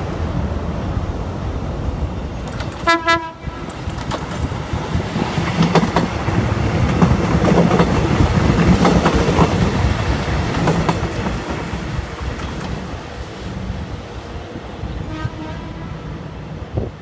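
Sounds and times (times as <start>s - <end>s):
rumble of train cars: 0.0s - 17.0s
train engine hum: 0.0s - 17.0s
wheels clicking over rail joints: 2.3s - 13.7s.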